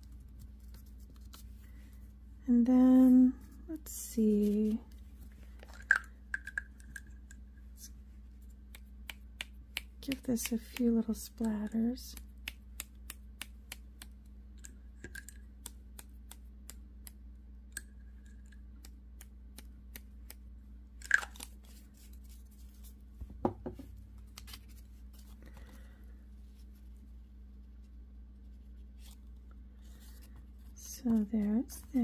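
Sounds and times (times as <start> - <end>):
dull knock on table: 23.3 - 23.8.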